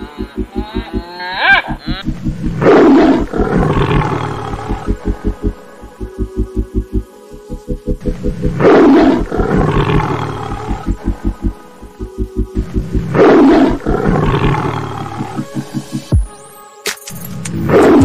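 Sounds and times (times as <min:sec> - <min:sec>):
lion roaring: 0:00.0 - 0:05.3, 0:08.4 - 0:11.6, 0:12.9 - 0:15.5
low throbbing pulse: 0:00.0 - 0:16.3.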